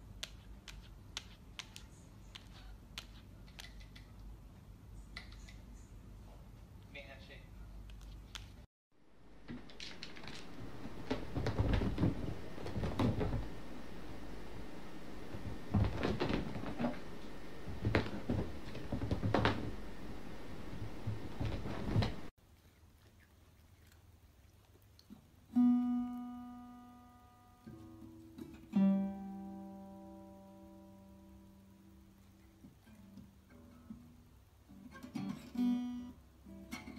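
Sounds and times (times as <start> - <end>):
irregular knocks and taps: 9.4 - 13.6, 15.3 - 19.8, 20.7 - 22.3.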